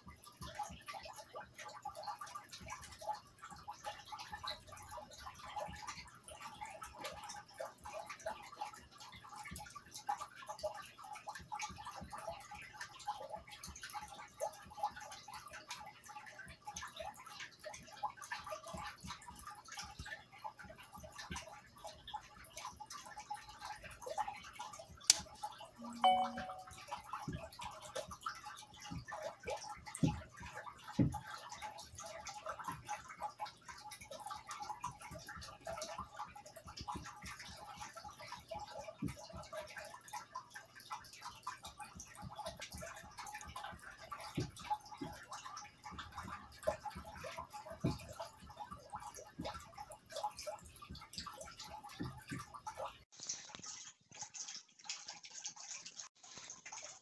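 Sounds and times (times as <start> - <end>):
crackly room noise: 0.0 - 57.0
brief tone: 25.8 - 26.8.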